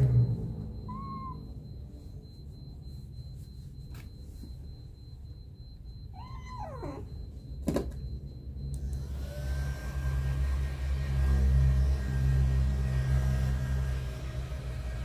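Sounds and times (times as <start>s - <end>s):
electric fan whirring: 8.6s - 15.0s.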